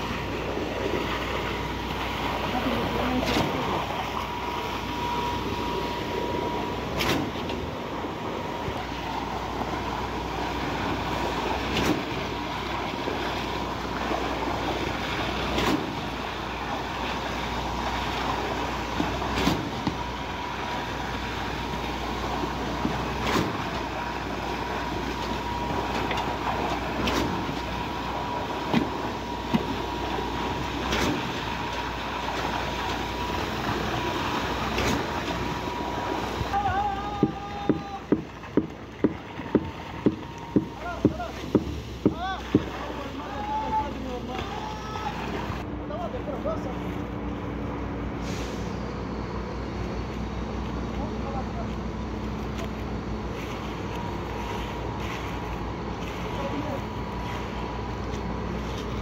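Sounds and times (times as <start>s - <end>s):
concrete pump droning: 0.0s - 59.0s
thin steady whine: 0.0s - 59.0s
pump knocking: 36.4s - 43.0s.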